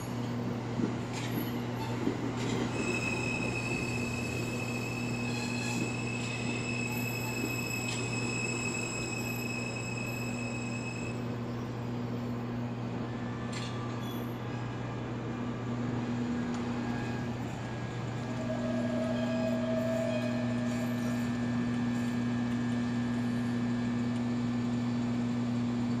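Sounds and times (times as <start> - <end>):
subway train low hum: 0.0 - 26.0.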